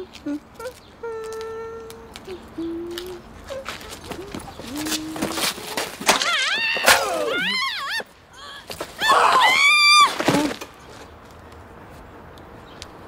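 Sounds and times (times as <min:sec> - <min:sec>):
body falling on pavement: 0:03.6 - 0:11.1
person screaming: 0:06.2 - 0:08.0, 0:09.0 - 0:10.1.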